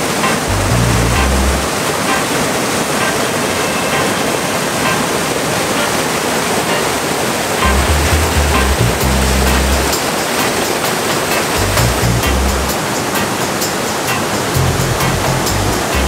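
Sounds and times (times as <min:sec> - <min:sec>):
waterfall rushing: 0:00.0 - 0:16.0
deep bass music: 0:00.4 - 0:01.7, 0:07.6 - 0:09.9, 0:11.5 - 0:12.8, 0:14.6 - 0:16.0.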